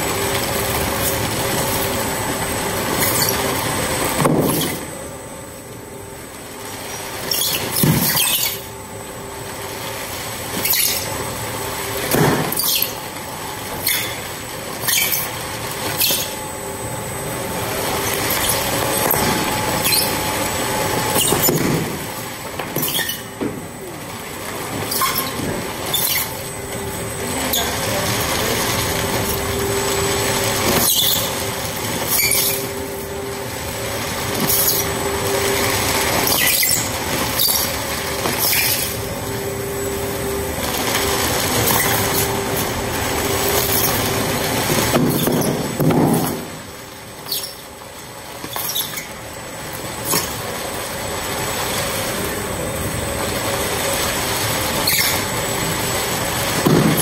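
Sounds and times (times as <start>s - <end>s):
shredder tearing plastic: 6.6s - 8.6s, 17.3s - 32.9s, 33.5s - 39.1s, 40.3s - 57.0s.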